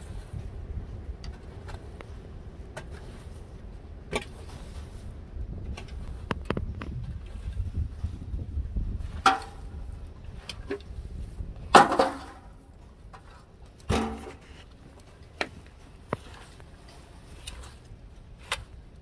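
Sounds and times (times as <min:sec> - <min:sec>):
shovel scraping dirt floor: 0:13.2 - 0:14.8, 0:16.0 - 0:18.8.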